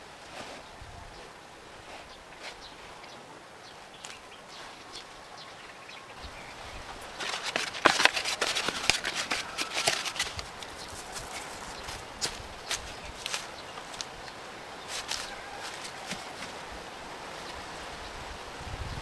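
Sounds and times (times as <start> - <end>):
plastic bag crinkling: 7.0 - 14.1, 14.8 - 16.6.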